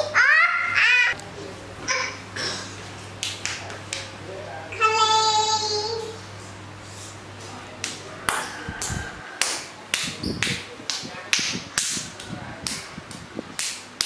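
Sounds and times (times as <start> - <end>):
sharp taps or claps: 3.2 - 4.1, 7.8 - 14.0.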